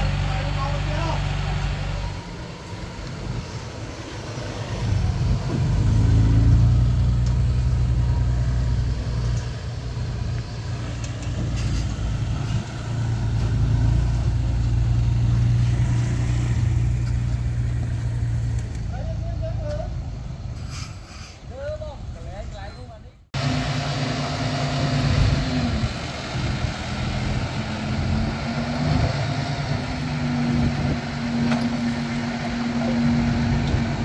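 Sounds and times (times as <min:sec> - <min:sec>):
heavy diesel engine running: 0:00.0 - 0:15.4, 0:23.4 - 0:34.0.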